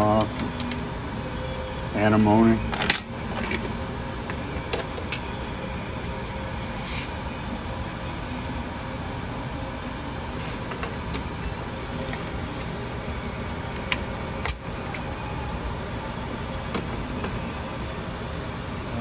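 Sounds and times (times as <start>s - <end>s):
sharp metal clinks: 2.7s - 3.6s.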